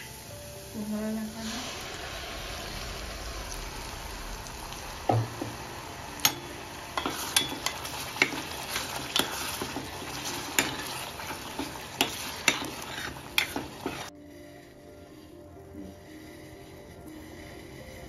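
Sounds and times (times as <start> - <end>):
ladle scraping and knocking on pot: 6.2 - 14.1.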